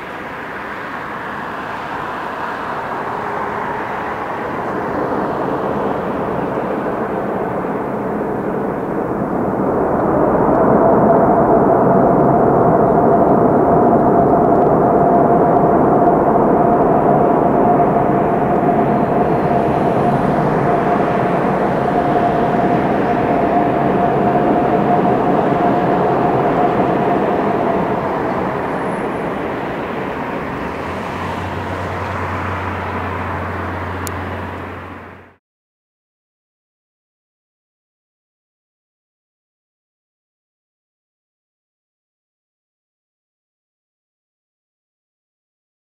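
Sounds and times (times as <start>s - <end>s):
jet engines rushing and whining: 0.0s - 35.4s.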